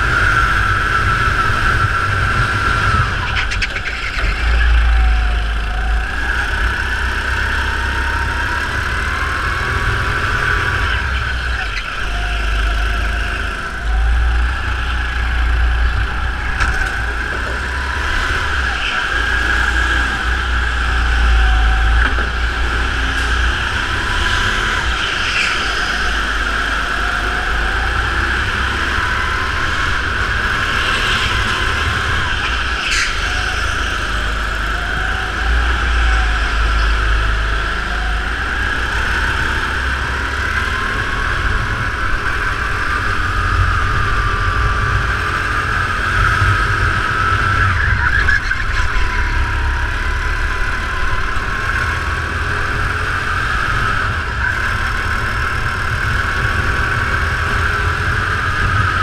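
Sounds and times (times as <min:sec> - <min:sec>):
kart engine running: 0:00.0 - 0:59.0
sharp squeal: 0:17.8 - 0:27.5, 0:30.7 - 0:34.4.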